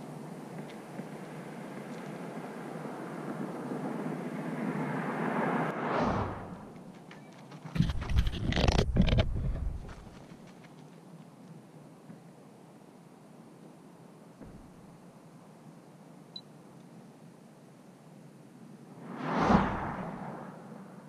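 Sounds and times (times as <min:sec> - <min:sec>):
vehicle passing: 0:01.4 - 0:06.8, 0:19.0 - 0:21.0
footsteps close to microphone: 0:06.8 - 0:10.8.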